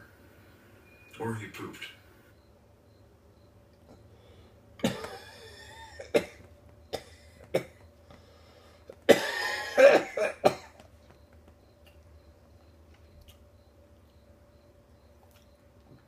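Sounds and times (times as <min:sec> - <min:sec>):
man coughing: 0:04.8 - 0:07.8, 0:09.1 - 0:10.8.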